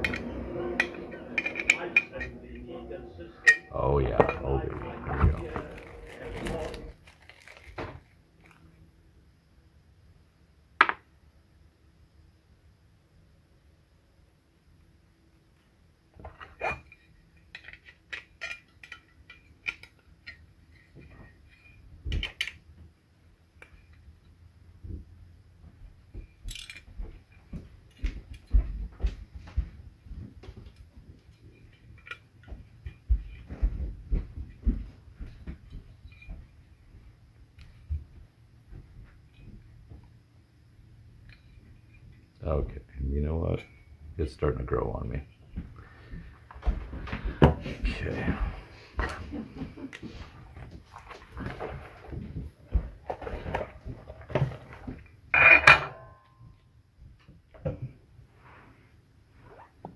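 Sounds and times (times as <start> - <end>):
rustling and small knocks: 4.1 - 8.8, 16.1 - 40.3, 49.0 - 55.3.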